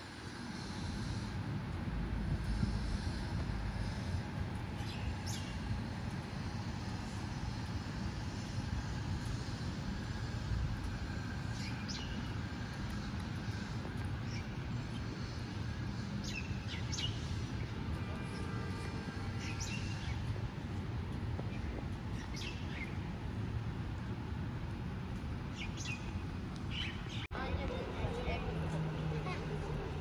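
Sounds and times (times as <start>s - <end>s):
distant traffic hum: 0.0s - 30.0s
small birds chirping: 2.4s - 10.4s, 11.0s - 20.8s, 21.4s - 23.3s, 25.4s - 28.4s.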